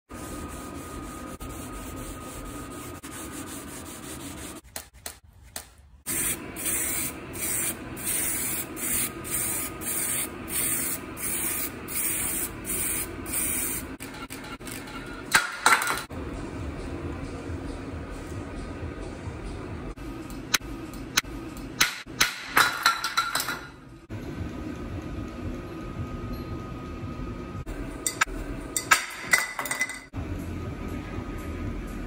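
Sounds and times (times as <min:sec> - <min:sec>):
sanding block rubbing metal: 0:00.1 - 0:04.6
spray paint can hissing: 0:06.1 - 0:13.9.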